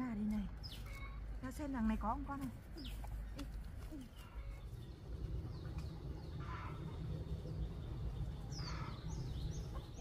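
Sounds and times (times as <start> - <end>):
low rumble: 3.6 - 10.0
high bird chirps: 4.1 - 10.0.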